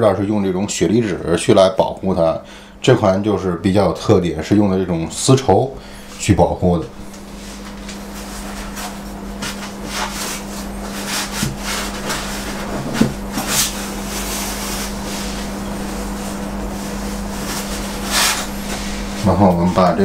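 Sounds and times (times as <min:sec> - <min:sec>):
low hum: 0:04.2 - 0:20.0.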